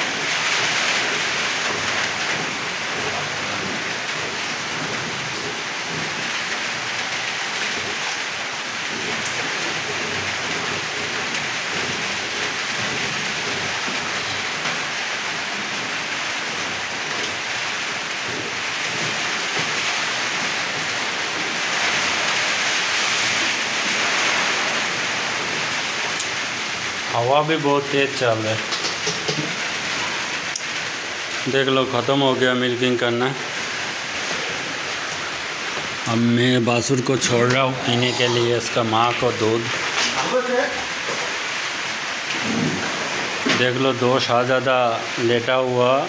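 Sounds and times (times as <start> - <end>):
steady rain falling: 0.0 - 46.0.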